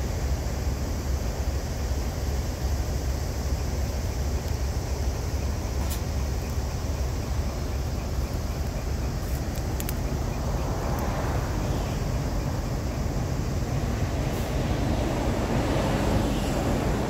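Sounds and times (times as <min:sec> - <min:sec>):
diesel truck engine idling: 0:00.0 - 0:17.0
faint clicks: 0:07.9 - 0:11.1.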